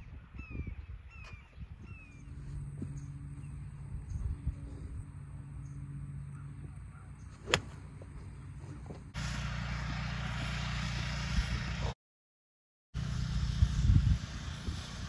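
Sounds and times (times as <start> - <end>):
golf club striking ball: 7.3 - 7.9.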